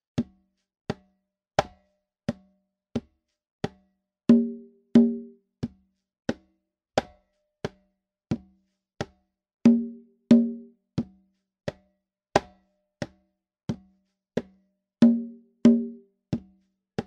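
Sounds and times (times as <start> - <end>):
conga played by hand: 4.3 - 5.4, 9.7 - 10.7, 15.0 - 16.0.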